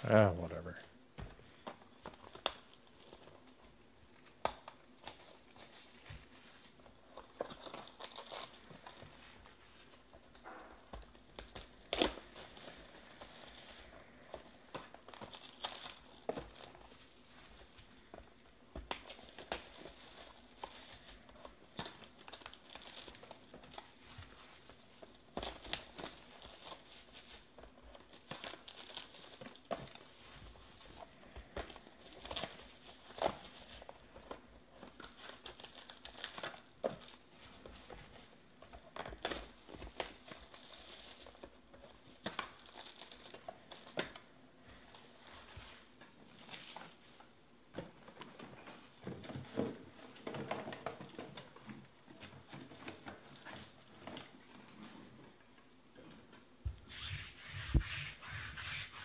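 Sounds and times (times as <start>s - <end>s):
shrink-wrap crinkling and tearing: 1.9s - 9.6s, 10.4s - 17.9s, 18.8s - 44.3s, 44.9s - 47.2s, 52.2s - 54.4s.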